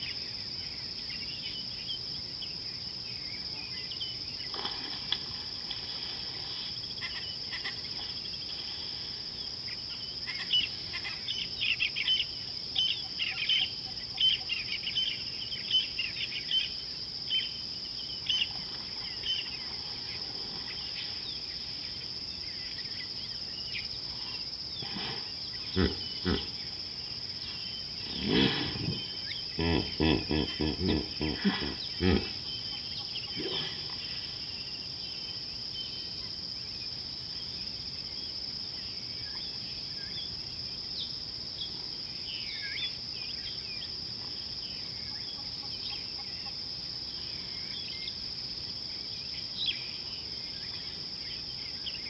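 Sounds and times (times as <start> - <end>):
birds chirping: 2.5 - 36.2
short low animal calls: 24.8 - 26.5, 28.1 - 32.5.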